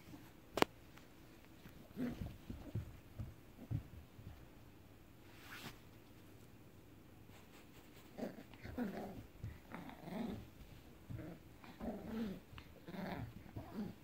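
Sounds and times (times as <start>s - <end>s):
puppy growling: 1.7s - 2.9s, 8.1s - 14.0s.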